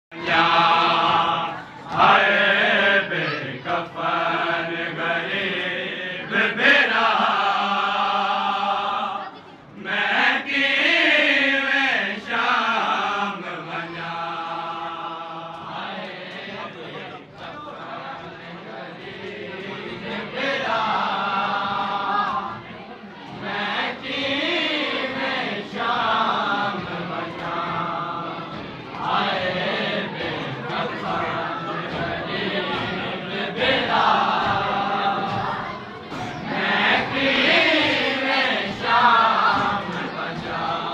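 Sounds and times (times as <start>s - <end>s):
men chanting: 0.1s - 40.9s.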